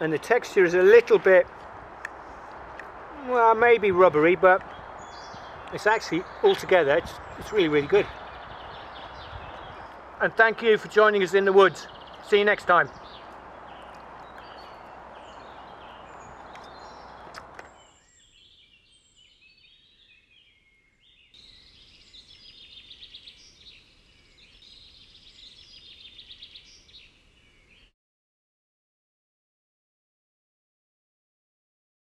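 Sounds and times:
songbirds chirping and singing: 0.0s - 27.9s
steady outdoor hiss: 0.0s - 27.9s.

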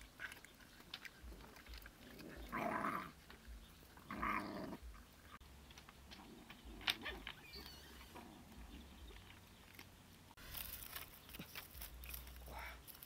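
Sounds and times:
dogs crunching bones: 0.0s - 7.4s, 8.1s - 13.0s
dog growling: 1.2s - 3.2s, 4.0s - 4.8s.

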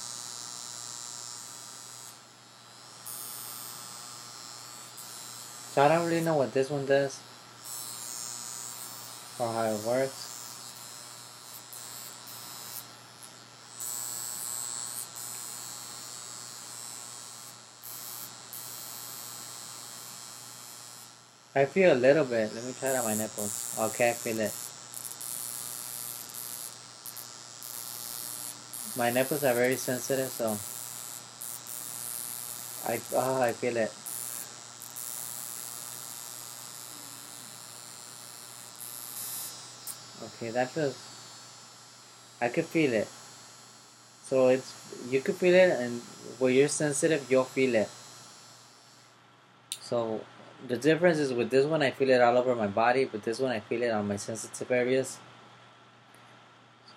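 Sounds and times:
low electrical mains hum: 0.0s - 56.9s
high hiss: 4.9s - 7.2s, 7.8s - 10.7s, 21.5s - 49.1s.

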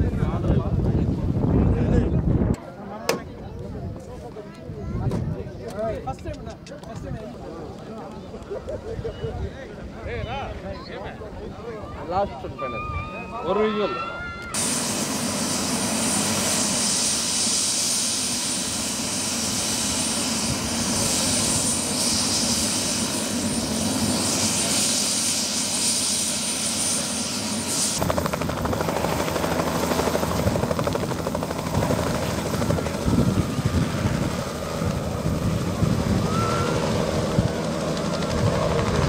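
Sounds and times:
helicopter turbine whine: 0.0s - 39.0s
helicopter rotor beat: 14.5s - 39.0s.

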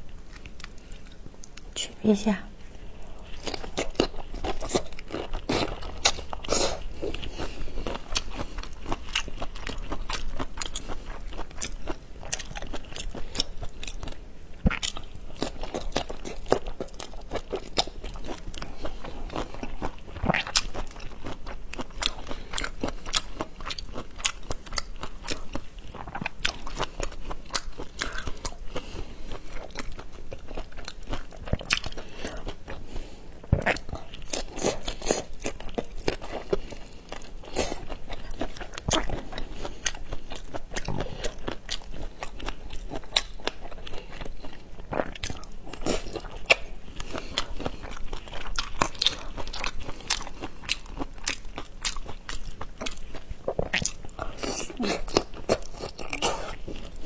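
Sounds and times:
crunchy chewing: 0.0s - 1.7s, 2.7s - 57.0s.

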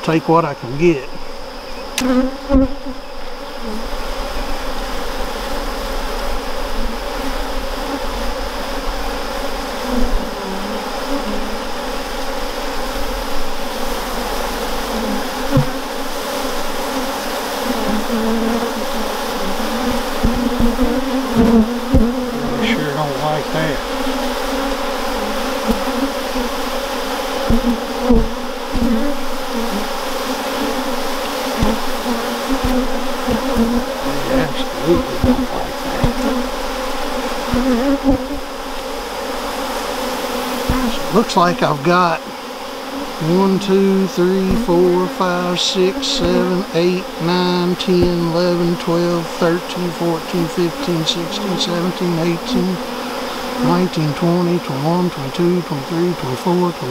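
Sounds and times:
honeybees buzzing: 0.0s - 56.9s.

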